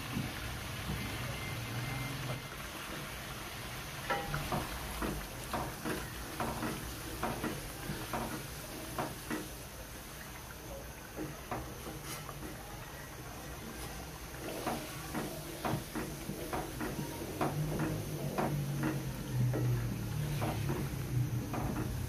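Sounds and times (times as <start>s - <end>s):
food sizzling in a pan: 0.0s - 22.0s
wooden spatula scraping a pan: 4.0s - 9.7s, 11.2s - 12.7s, 13.4s - 22.0s.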